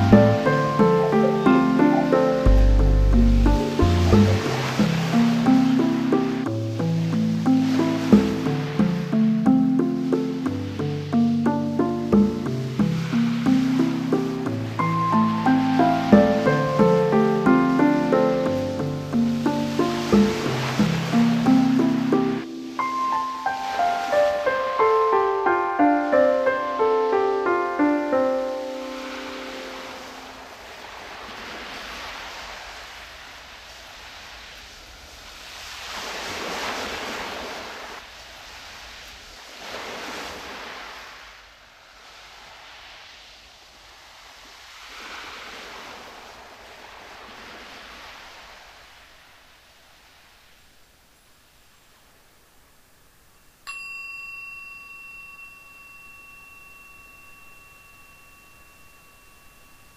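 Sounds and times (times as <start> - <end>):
ocean waves surging: 0.0 - 53.3, 54.0 - 59.9
faint hiss: 0.0 - 59.9
bell-like chime ringing: 53.6 - 59.9.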